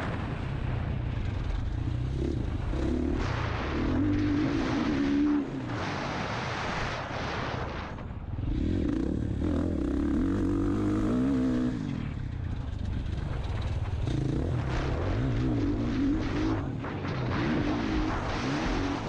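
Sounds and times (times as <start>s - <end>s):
rushing noise: 0.0s - 19.0s
dirt bike engine revving: 1.2s - 5.7s, 8.4s - 16.8s.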